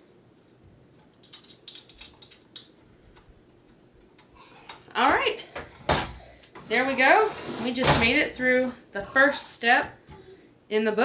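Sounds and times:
bolt and nut clicking and tapping: 1.2 - 3.3.

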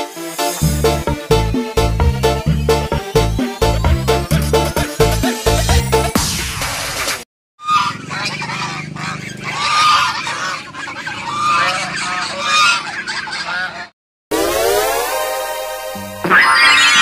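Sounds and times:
geese honking: 7.6 - 13.9.

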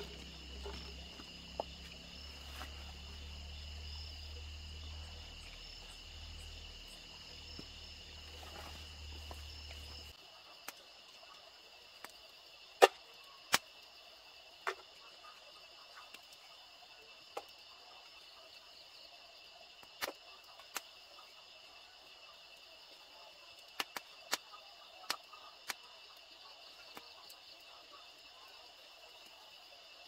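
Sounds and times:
night crickets chorus: 0.0 - 30.0
sharp clicks and snaps: 13.5 - 13.8, 23.7 - 24.5.

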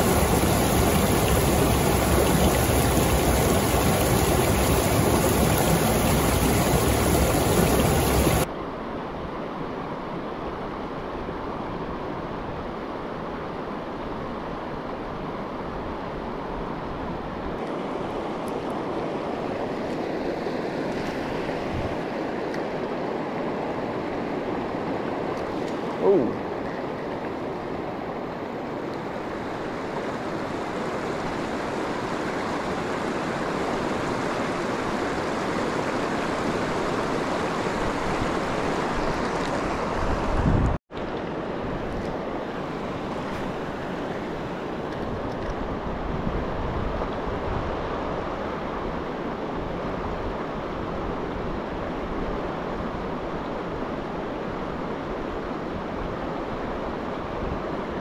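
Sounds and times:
river rapids rushing: 0.0 - 8.5
wind rumble on microphone: 0.0 - 25.7, 26.3 - 58.0.

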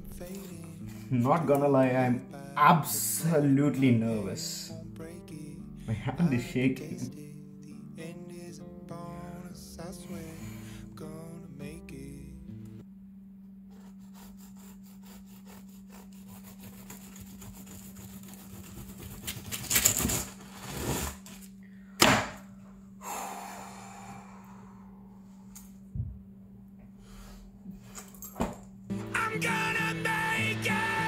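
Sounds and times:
knife sawing through pastry crust: 13.7 - 21.3
parchment paper rustling: 15.4 - 21.5
steady low hum: 21.3 - 28.9
thunk: 22.0 - 22.4.

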